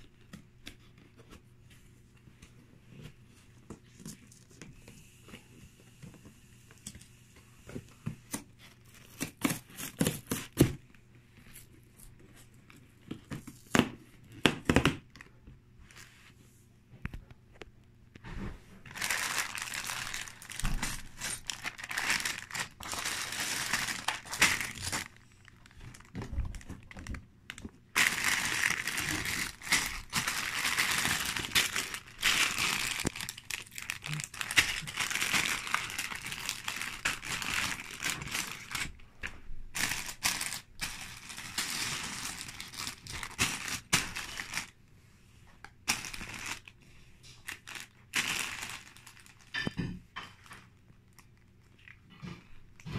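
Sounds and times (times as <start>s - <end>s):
plastic bags crinkling: 18.8s - 44.8s, 45.8s - 52.0s.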